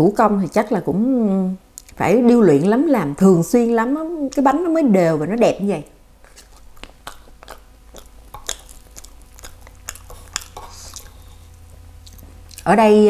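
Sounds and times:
mouth clicks: 0:06.2 - 0:12.7
person chewing soft food: 0:06.2 - 0:12.7.

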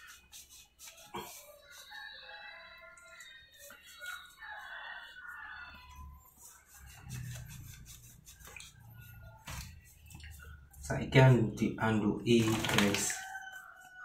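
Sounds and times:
rooster crowing faintly: 0:00.9 - 0:10.6, 0:12.8 - 0:14.0.

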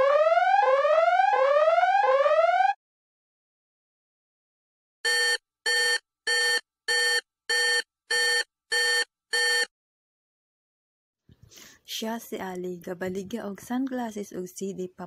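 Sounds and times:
short electronic beeps: 0:05.1 - 0:09.7.

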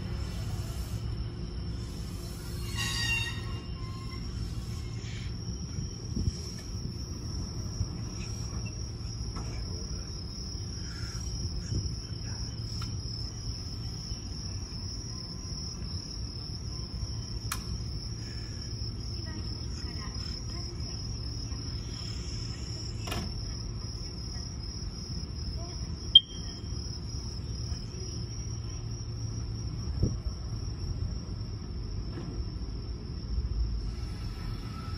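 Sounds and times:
crickets trilling: 0:00.0 - 0:34.9
low electric train hum: 0:00.0 - 0:34.9
short sharp beep: 0:26.2 - 0:26.4.

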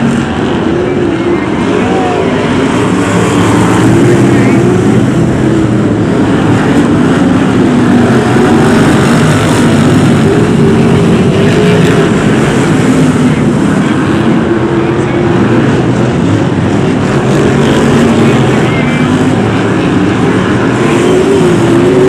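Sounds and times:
racing car engines revving: 0:00.0 - 0:22.0.

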